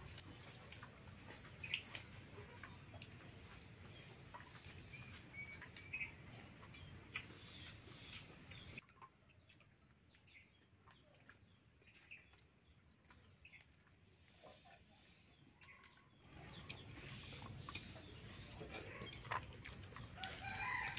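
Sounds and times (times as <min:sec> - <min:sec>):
chickens clucking: 0:00.0 - 0:20.9
bird chirps: 0:04.0 - 0:08.8.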